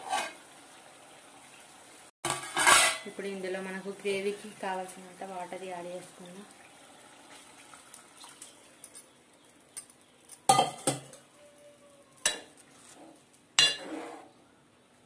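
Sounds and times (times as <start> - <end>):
spoon clanking against metal pot: 10.5 - 11.2, 12.2 - 12.5, 13.6 - 13.9.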